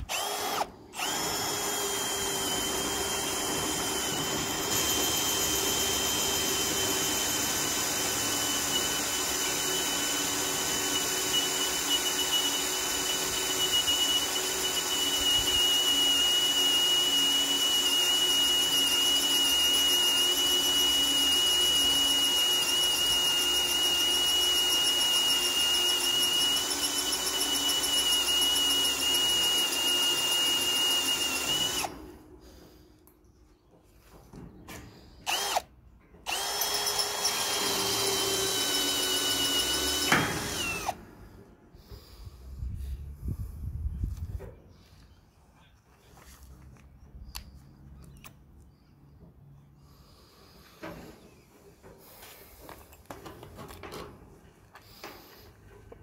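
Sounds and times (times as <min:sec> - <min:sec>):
drill boring into steel: 0:00.0 - 0:32.2, 0:35.2 - 0:35.7, 0:36.3 - 0:41.0.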